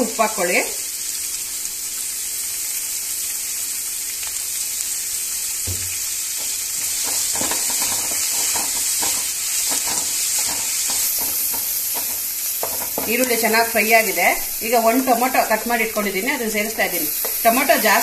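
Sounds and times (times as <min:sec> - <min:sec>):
onions sizzling in hot oil: 0:00.0 - 0:18.0
wooden spatula scraping a pan: 0:06.4 - 0:13.3.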